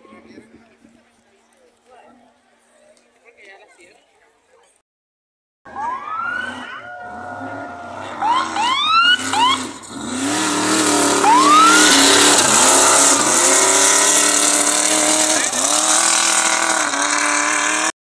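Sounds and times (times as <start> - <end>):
race buggy engine accelerating: 5.7 - 18.0.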